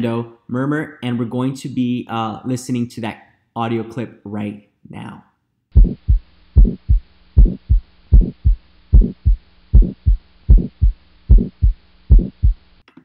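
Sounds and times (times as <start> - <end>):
faint steady hum: 0.0 - 12.9
heartbeat: 5.7 - 12.7.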